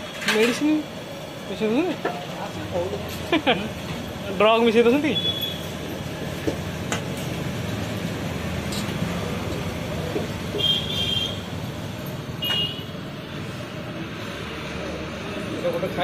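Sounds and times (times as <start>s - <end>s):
street traffic noise: 0.0s - 16.0s
vehicle horn toots: 10.5s - 11.4s, 12.4s - 12.9s.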